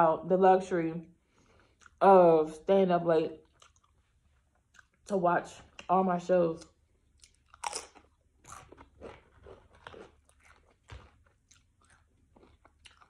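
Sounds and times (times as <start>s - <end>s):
chewing crunchy chips: 1.6s - 2.0s, 3.4s - 5.1s, 6.6s - 13.0s.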